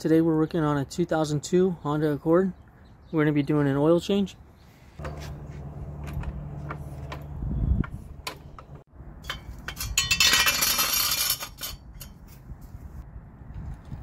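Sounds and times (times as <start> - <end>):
low hum: 5.0 - 8.9
metal hand tools clinking: 9.2 - 12.3.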